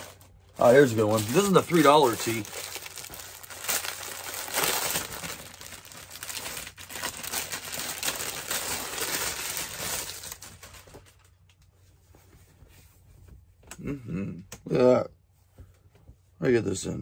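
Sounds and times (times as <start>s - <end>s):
packaging crinkling: 0.0s - 11.4s.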